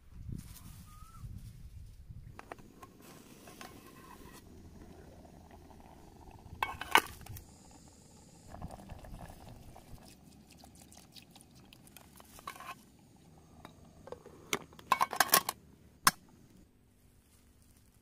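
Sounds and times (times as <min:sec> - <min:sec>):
pot bubbling on the boil: 0:02.4 - 0:15.2.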